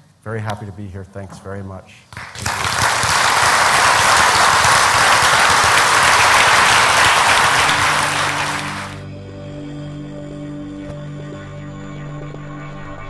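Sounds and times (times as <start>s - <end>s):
audience applauding: 2.2s - 9.0s
steady music: 3.8s - 9.7s.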